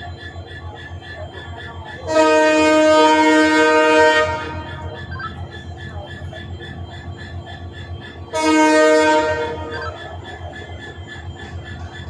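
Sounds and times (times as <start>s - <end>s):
locomotive engine running: 0.0s - 12.0s
locomotive horn blast: 2.1s - 4.9s, 8.3s - 10.0s.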